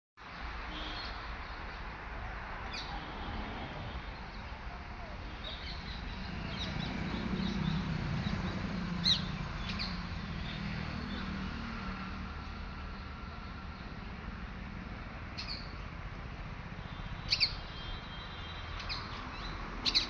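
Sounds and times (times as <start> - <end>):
birds chirping: 4.0 - 20.0.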